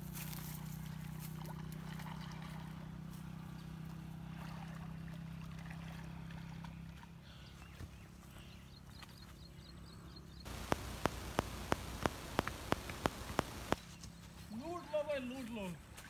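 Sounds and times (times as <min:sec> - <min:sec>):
low motor hum: 0:00.6 - 0:09.2, 0:10.5 - 0:13.8
swimmer splashing water: 0:04.2 - 0:06.8, 0:10.5 - 0:13.8.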